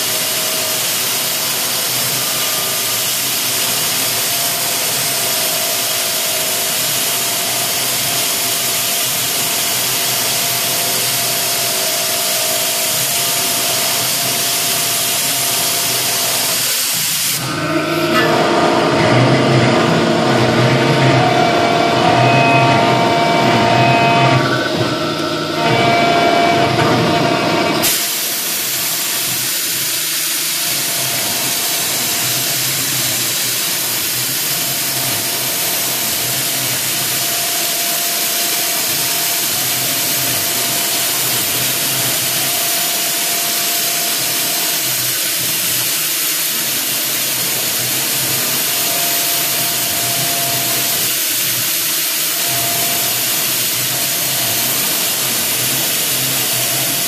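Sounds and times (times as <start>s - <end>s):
router spindle cutting hiss: 27.8s - 57.0s.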